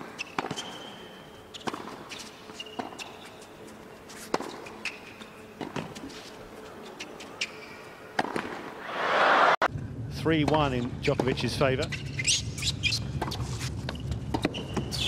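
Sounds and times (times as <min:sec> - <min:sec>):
racket hitting tennis ball: 0:00.0 - 0:00.9, 0:01.6 - 0:03.2, 0:04.2 - 0:06.2, 0:08.2 - 0:08.8
tennis ball bouncing: 0:00.0 - 0:00.9, 0:01.5 - 0:03.4, 0:04.2 - 0:06.2, 0:08.1 - 0:08.8, 0:13.2 - 0:14.9
shoes squeaking on court: 0:00.0 - 0:08.8, 0:10.5 - 0:15.0.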